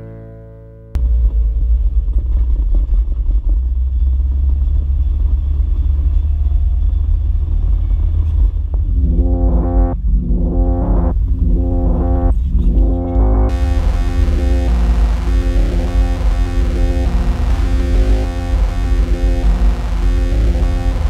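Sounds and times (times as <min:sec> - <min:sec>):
music: 0:00.0 - 0:01.0, 0:08.8 - 0:21.0
car engine rumble: 0:01.0 - 0:21.0.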